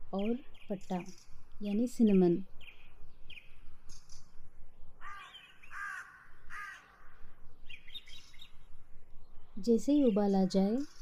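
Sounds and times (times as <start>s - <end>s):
small birds chirping: 0.0s - 11.0s
crows cawing: 5.0s - 7.4s.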